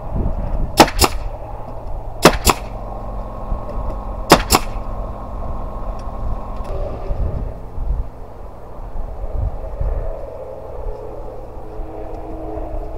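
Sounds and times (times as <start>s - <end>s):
nail gun firing into timber: 0.8s - 1.3s, 2.2s - 2.8s, 4.3s - 4.8s.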